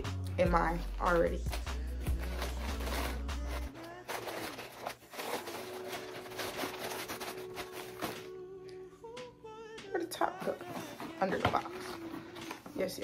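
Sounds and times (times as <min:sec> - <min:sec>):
sneakers and shoebox rustling: 0:00.5 - 0:08.3, 0:10.4 - 0:13.0.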